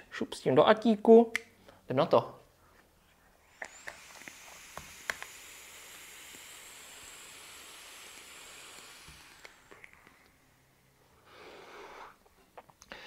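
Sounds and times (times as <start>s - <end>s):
vape coil airy hiss: 3.5s - 10.5s
vape coil pops and crackles: 3.6s - 7.0s, 7.6s - 10.3s.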